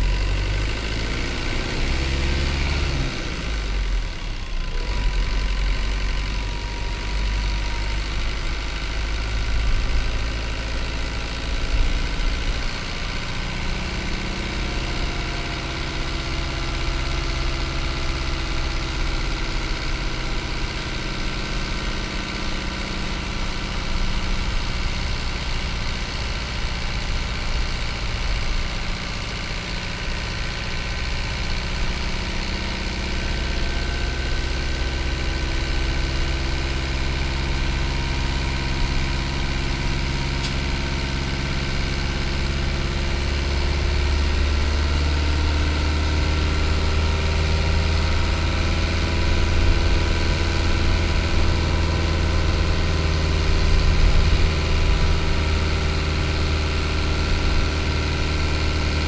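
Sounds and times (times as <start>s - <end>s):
diesel bus engine running: 0.0s - 59.0s.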